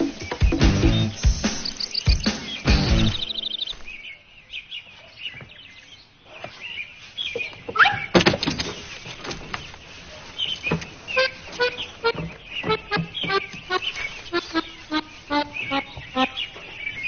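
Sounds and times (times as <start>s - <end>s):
pitched instrument notes: 0.0s - 3.9s, 11.2s - 16.5s
bird chirps: 0.0s - 8.2s, 8.8s - 17.0s
knocks: 12.1s - 13.6s.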